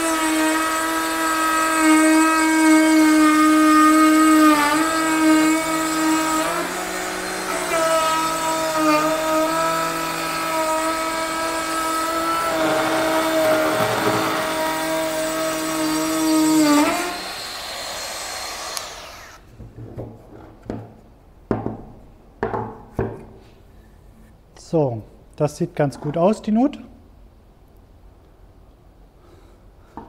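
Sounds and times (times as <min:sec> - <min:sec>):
router cutting wood: 0:00.0 - 0:19.4.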